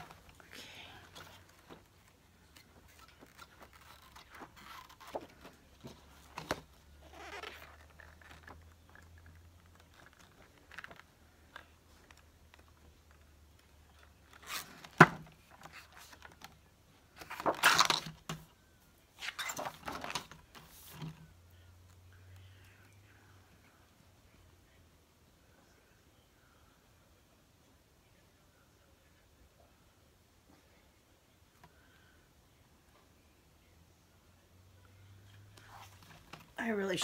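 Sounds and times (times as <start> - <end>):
book pages rustling: 1.0 - 18.5, 19.2 - 21.3, 35.5 - 37.0.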